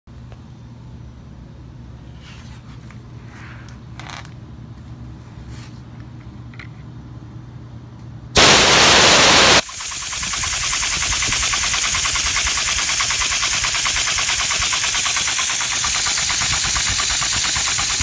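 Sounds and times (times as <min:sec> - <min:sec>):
compressed air hissing: 0:08.4 - 0:18.0.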